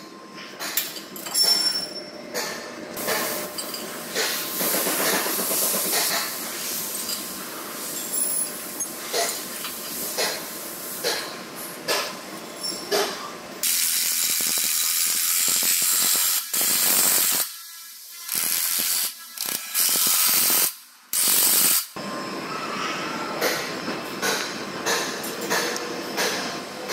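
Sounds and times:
ratchet wrench clicking: 0:18.2 - 0:22.0.

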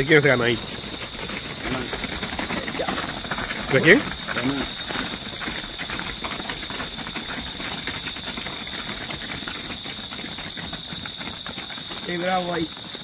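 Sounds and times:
wood fire crackling: 0:00.0 - 0:10.3.

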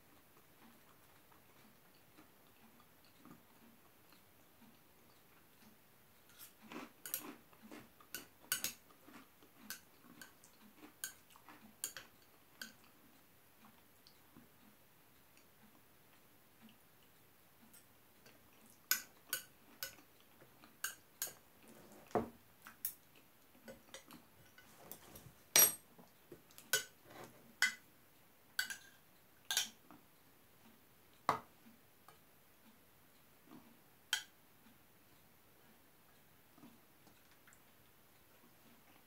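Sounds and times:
metal spoon clinking against bowl: 0:25.6 - 0:25.8.

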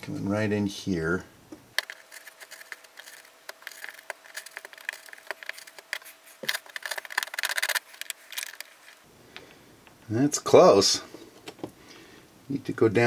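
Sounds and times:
knife blade scraping foam: 0:01.8 - 0:08.2.

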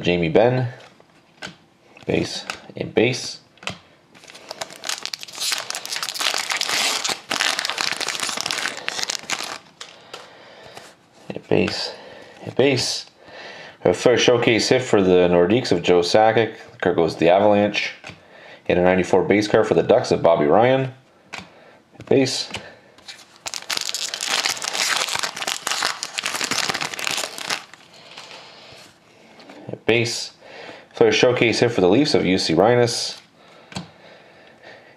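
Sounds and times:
cards and packaging crinkling: 0:04.2 - 0:10.9, 0:23.0 - 0:28.4.

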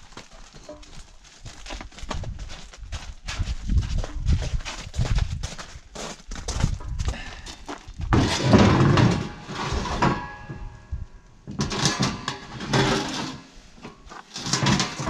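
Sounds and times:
steel cylinder scraping and knocking: 0:08.1 - 0:10.8, 0:11.5 - 0:15.0.

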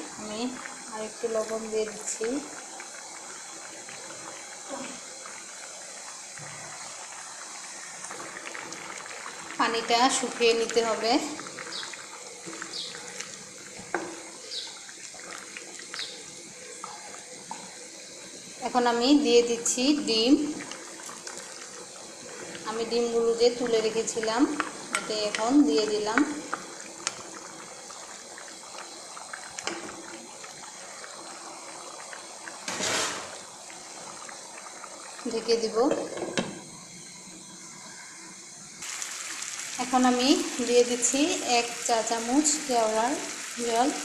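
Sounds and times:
rice and water bubbling in a pan: 0:00.0 - 0:44.0.

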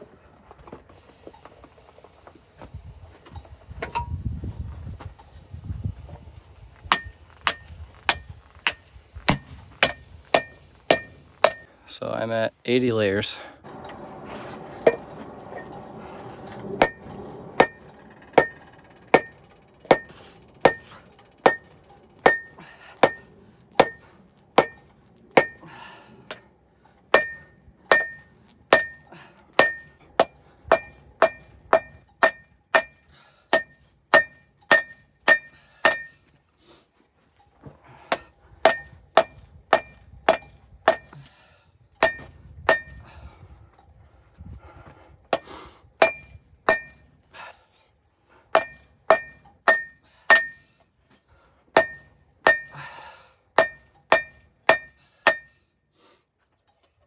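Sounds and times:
hammer blows on anvil: 0:06.9 - 0:11.7.

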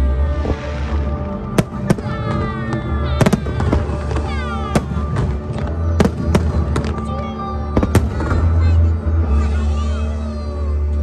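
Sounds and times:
music playing: 0:00.0 - 0:11.0
fireworks bursting: 0:00.1 - 0:08.6.

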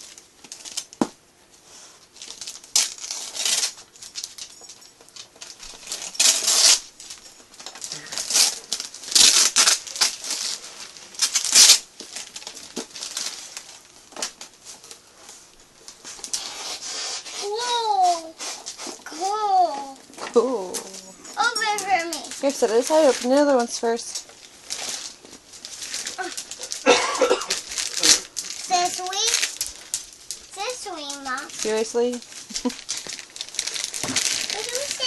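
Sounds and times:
wrapping paper tearing: 0:00.0 - 0:01.0, 0:02.1 - 0:15.0, 0:16.0 - 0:35.0
paper rustling: 0:20.8 - 0:35.0.

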